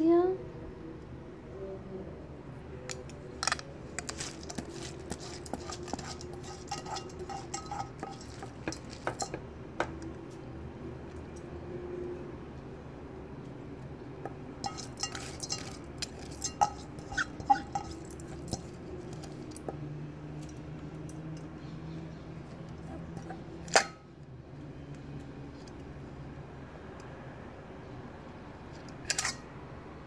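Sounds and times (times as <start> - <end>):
steady low hum: 0.0 - 11.4
metallic clinks on steel pot: 4.4 - 10.0, 14.6 - 19.8.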